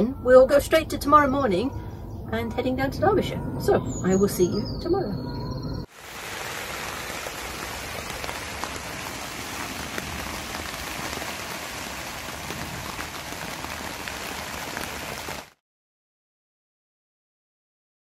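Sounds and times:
heavy rain on caravan roof: 5.9s - 15.6s.

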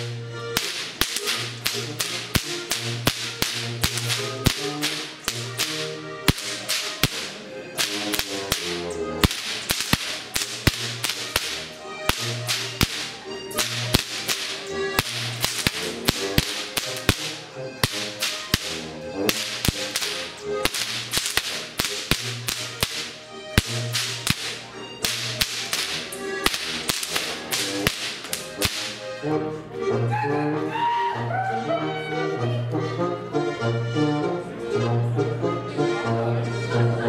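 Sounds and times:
whips cracking rhythmically: 0.0s - 29.4s
band playing folk music: 0.0s - 37.0s.

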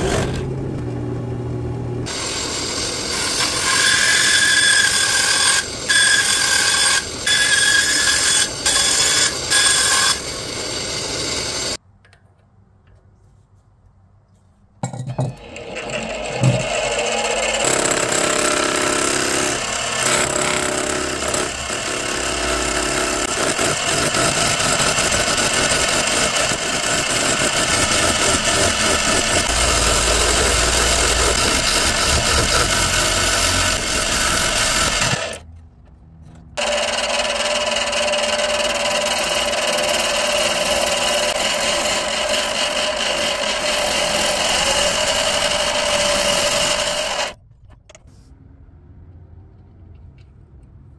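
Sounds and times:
lathe tool shaving wood: 2.1s - 11.8s, 15.4s - 35.4s, 36.6s - 47.4s
motor hum: 20.7s - 35.4s.

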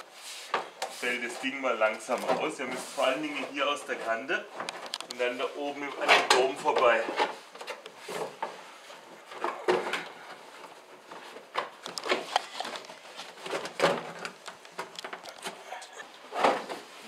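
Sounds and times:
plastic liner scraping and knocking: 0.5s - 8.6s.

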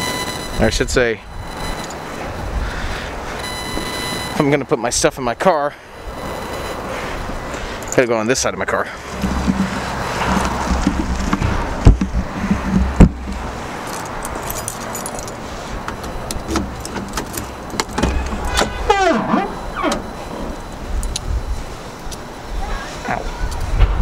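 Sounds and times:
car keys jangling: 1.5s - 2.1s, 7.5s - 8.1s, 13.3s - 19.0s, 19.8s - 21.3s
sharp thumps: 9.0s - 14.7s.

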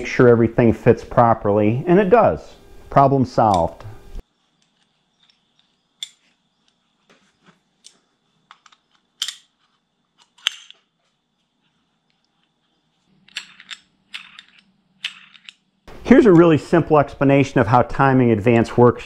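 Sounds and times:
small metal parts clicking: 13.2s - 15.7s.

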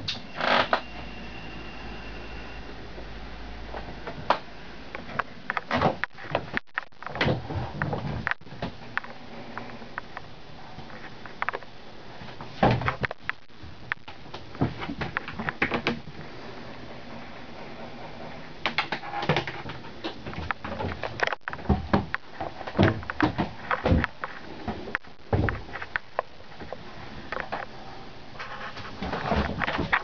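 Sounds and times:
steady background hiss: 0.0s - 30.0s
knocks and thumps in wooden cabin: 5.1s - 9.0s, 12.2s - 16.2s, 18.6s - 26.1s, 28.9s - 30.0s.

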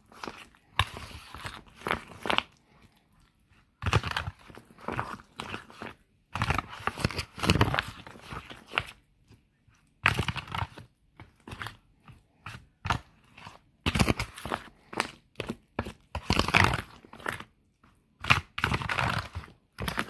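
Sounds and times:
spoon stirring thick batter: 0.0s - 20.0s
foil pan crinkling: 13.0s - 17.5s, 18.3s - 20.0s.

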